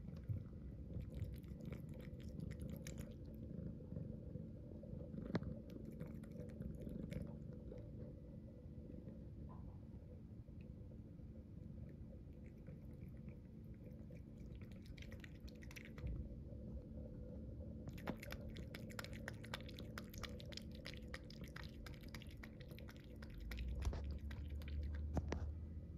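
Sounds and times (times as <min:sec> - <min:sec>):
cat lapping water: 0:00.0 - 0:04.2, 0:05.0 - 0:07.8, 0:12.2 - 0:16.3, 0:17.9 - 0:25.4
water fountain pump hum: 0:00.0 - 0:09.5, 0:10.4 - 0:25.9
trickling water stream: 0:17.9 - 0:25.2.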